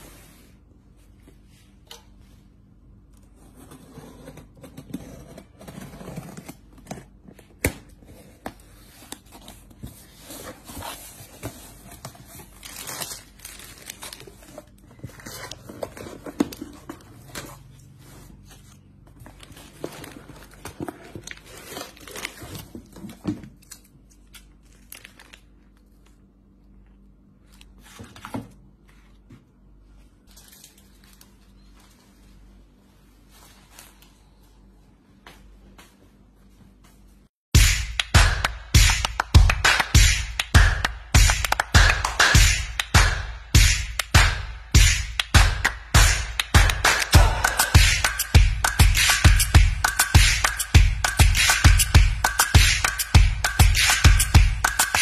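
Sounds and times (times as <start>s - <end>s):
cardboard and plastic rustling: 5.4s - 26.2s, 27.4s - 34.4s.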